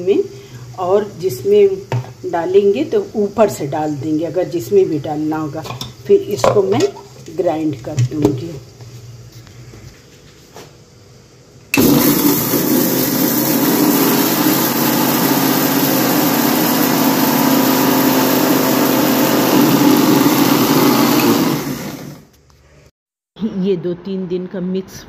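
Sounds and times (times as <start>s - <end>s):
mixer grinder motor grinding spices: 11.8s - 22.3s.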